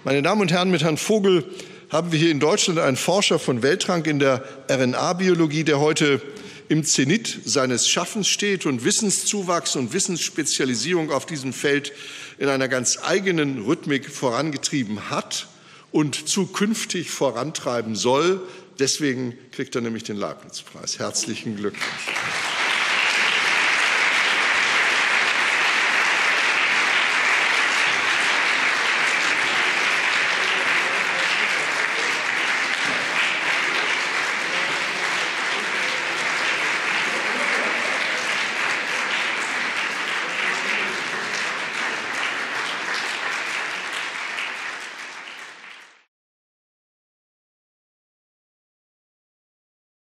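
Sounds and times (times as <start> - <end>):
audience applauding: 21.5 - 46.1.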